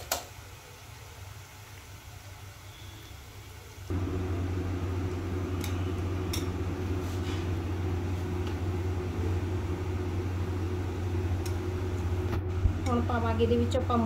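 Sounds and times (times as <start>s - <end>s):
low electric motor hum: 3.8s - 14.0s.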